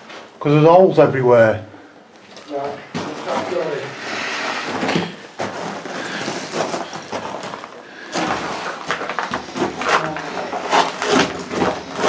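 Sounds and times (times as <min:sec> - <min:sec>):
footsteps crunching on concrete: 0:04.7 - 0:12.0.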